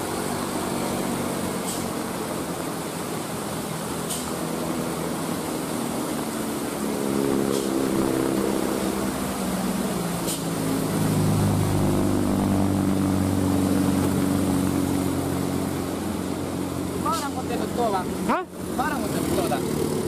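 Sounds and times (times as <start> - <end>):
car passing on wet road: 0.0 - 20.0
truck diesel engine humming: 0.0 - 20.0.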